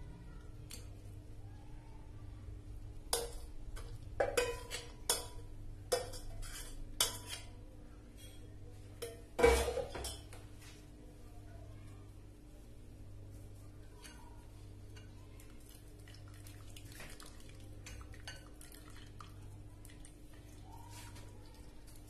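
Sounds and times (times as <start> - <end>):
metal spoon scraping steel pot: 6.0 - 7.4.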